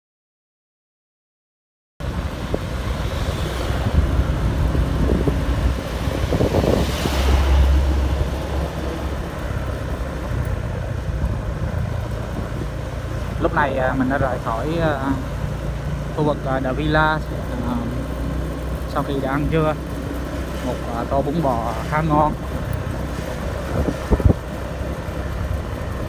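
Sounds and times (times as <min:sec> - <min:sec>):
wind buffeting microphone: 0:02.0 - 0:15.0, 0:17.0 - 0:26.0
low rumbling: 0:02.0 - 0:26.0
vehicle road noise: 0:02.0 - 0:26.0.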